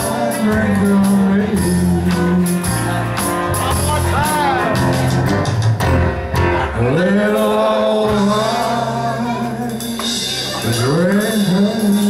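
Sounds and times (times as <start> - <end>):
live band playing country music: 0.0 - 12.0
man singing long held notes: 6.6 - 12.0.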